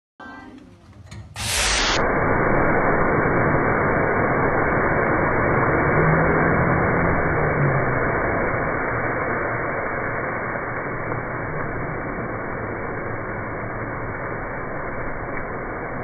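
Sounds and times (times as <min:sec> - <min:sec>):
loud rushing noise: 0:00.9 - 0:09.3.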